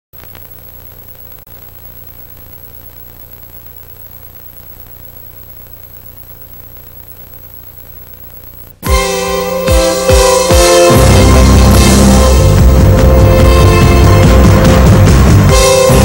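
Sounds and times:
tape hiss: 0:00.1 - 0:16.0
low hum: 0:00.2 - 0:08.9
faint high whine: 0:00.2 - 0:10.2.

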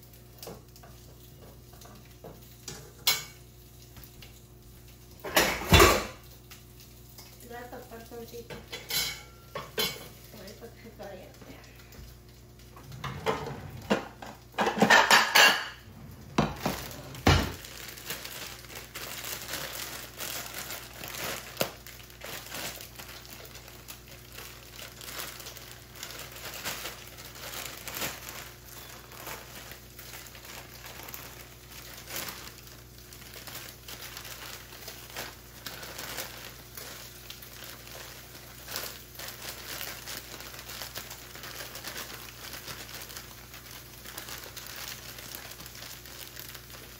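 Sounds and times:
plastic bag crinkling: 0:00.0 - 0:08.5, 0:09.7 - 0:46.9
dishes clattering: 0:05.2 - 0:06.2, 0:12.8 - 0:17.6.

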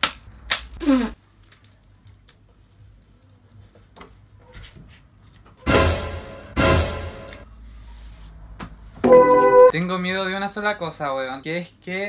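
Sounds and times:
loud music with brass: 0:05.7 - 0:07.4.

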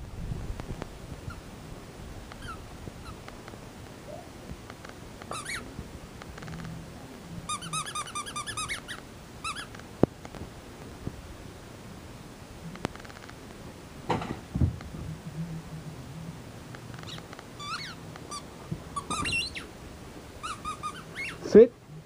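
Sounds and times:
high-pitched squeaks: 0:05.3 - 0:05.7, 0:17.0 - 0:19.7, 0:20.4 - 0:21.5.

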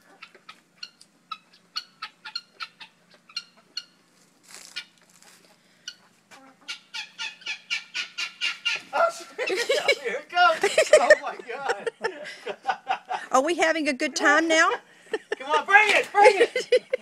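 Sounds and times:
chickens clucking: 0:00.0 - 0:13.3.

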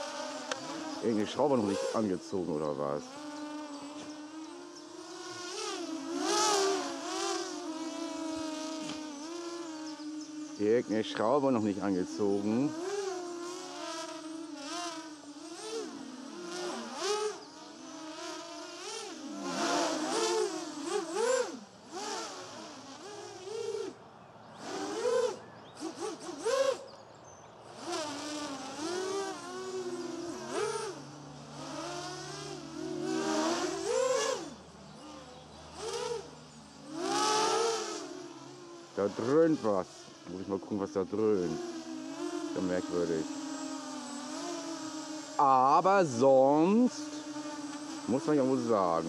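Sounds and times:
quadcopter motors whining: 0:00.0 - 0:49.0
man speaking: 0:01.0 - 0:03.0, 0:45.4 - 0:47.2, 0:48.1 - 0:49.0.

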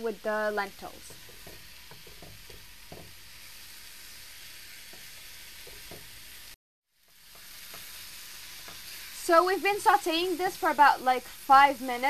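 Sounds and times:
vegetables sizzling in a frying pan: 0:00.0 - 0:12.0.

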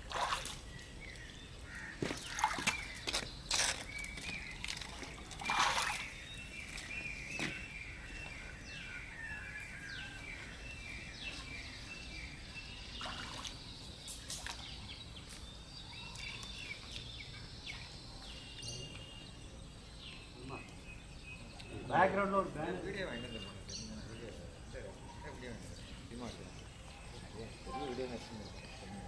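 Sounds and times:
water sloshing and splashing: 0:00.0 - 0:00.7, 0:01.8 - 0:07.0, 0:13.0 - 0:14.9
birds chirping: 0:00.0 - 0:29.0.

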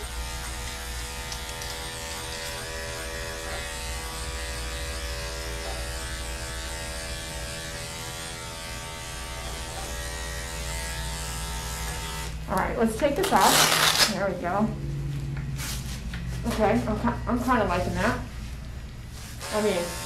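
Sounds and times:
dog clipper humming: 0:00.0 - 0:14.3, 0:19.4 - 0:20.0.

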